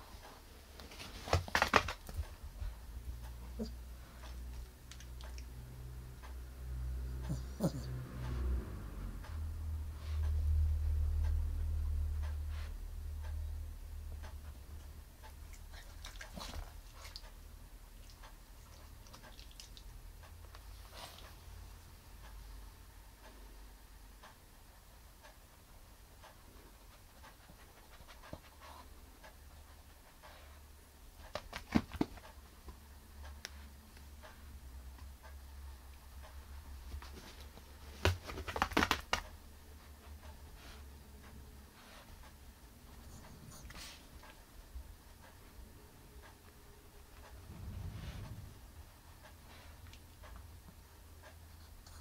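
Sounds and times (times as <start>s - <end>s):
dog's feet clicking: 0.8s - 3.7s, 31.1s - 33.5s, 36.8s - 39.5s
dog sniffing: 20.6s - 21.4s, 26.5s - 32.2s, 39.8s - 44.4s
low rumble: 47.0s - 50.6s.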